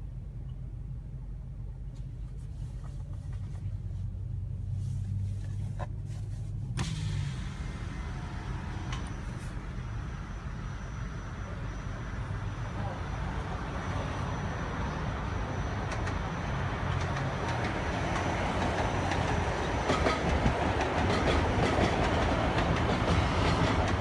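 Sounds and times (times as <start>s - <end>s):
passing traffic: 0.0s - 24.0s
car cabin rumble: 1.8s - 14.3s.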